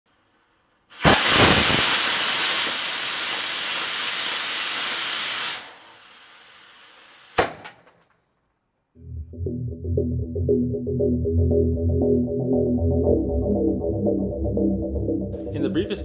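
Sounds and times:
sharp pops: 0.9s - 3.4s, 7.3s - 8.2s
rocket motor hissing: 0.9s - 7.4s.

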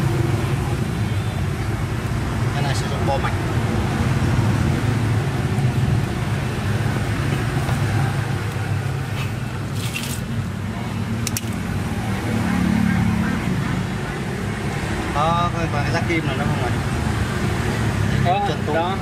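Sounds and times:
electrical wires rustling: 9.0s - 10.5s.

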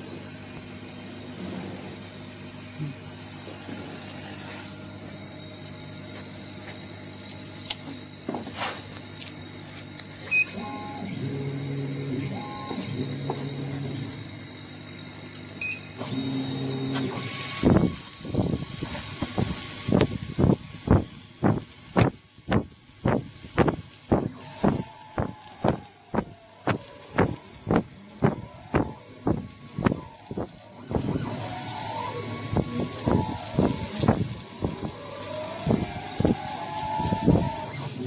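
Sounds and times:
drive motors whining: 0.0s - 38.0s
laser cutter humming: 0.0s - 38.0s
short high beeps: 10.3s - 10.6s.

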